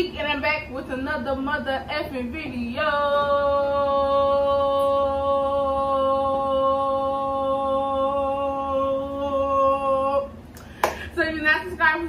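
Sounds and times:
woman singing a long note: 1.2s - 10.4s.

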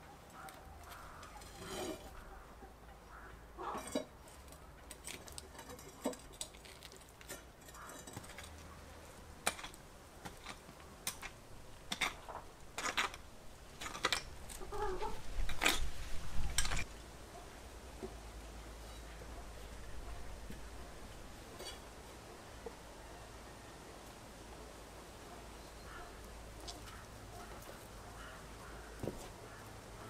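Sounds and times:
shovel scraping into soil: 1.4s - 2.1s
hen clucking: 14.6s - 15.2s.

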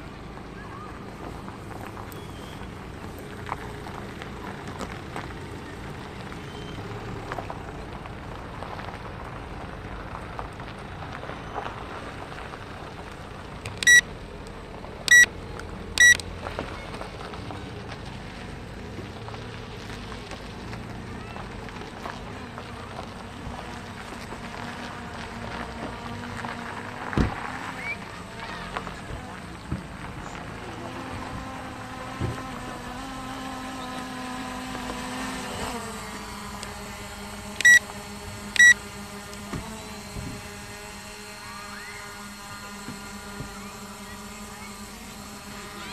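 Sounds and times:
drone propellers humming: 12.0s - 16.3s, 22.6s - 45.9s
short high electronic beeps: 13.8s - 14.0s, 15.1s - 15.3s, 16.0s - 16.2s, 38.6s - 38.8s.

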